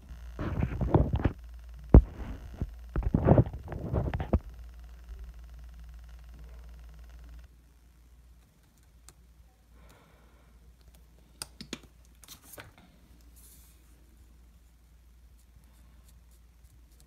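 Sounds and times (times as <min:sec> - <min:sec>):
low steady hum: 0:00.0 - 0:17.0
soft rustle of paint tube: 0:12.2 - 0:17.0.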